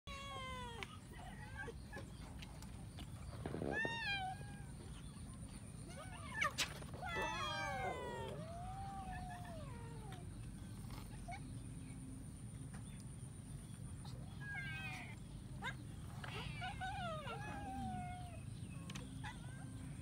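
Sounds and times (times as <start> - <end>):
cats meowing: 0.1 - 1.5, 3.5 - 5.0, 5.9 - 10.3, 14.4 - 15.2, 16.3 - 18.4.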